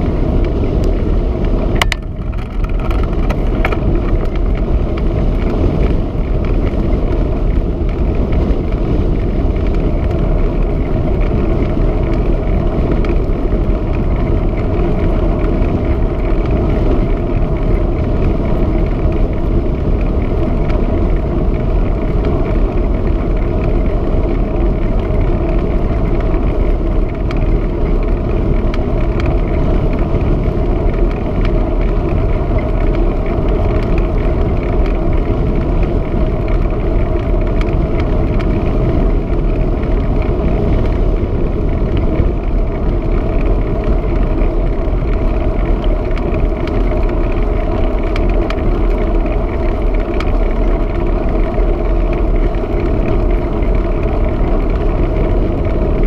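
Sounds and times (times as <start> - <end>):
bicycle tyres rolling on tarmac: 0.0 - 56.0
wind buffeting microphone: 0.0 - 56.0.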